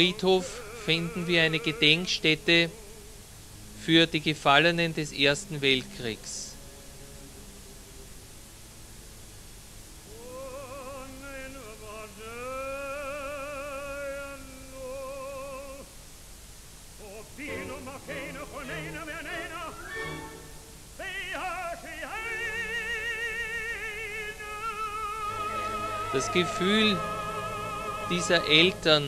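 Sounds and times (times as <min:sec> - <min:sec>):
person singing operatically: 0:00.0 - 0:03.2, 0:10.1 - 0:15.9, 0:17.0 - 0:29.0.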